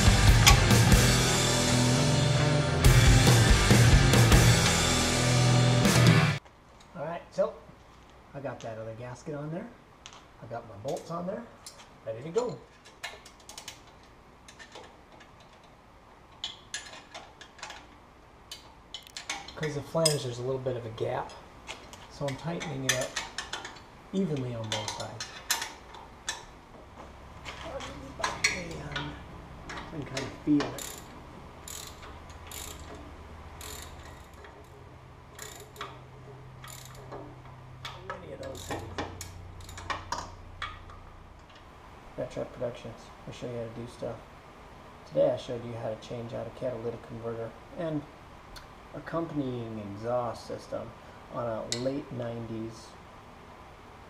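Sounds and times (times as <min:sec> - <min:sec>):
hand ratchet clicking: 0:30.6 - 0:34.7, 0:35.3 - 0:36.0, 0:36.6 - 0:41.0.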